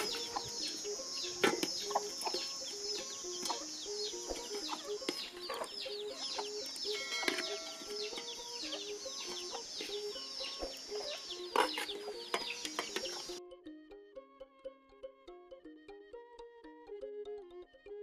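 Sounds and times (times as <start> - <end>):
chickens clucking: 0.0 - 13.4
background music: 0.0 - 18.0.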